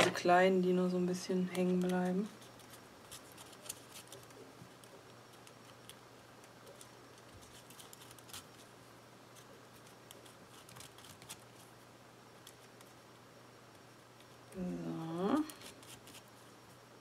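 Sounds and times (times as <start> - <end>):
craft pick clicking and scratching: 1.4 - 8.7, 9.3 - 11.7, 12.4 - 13.1, 15.5 - 16.8.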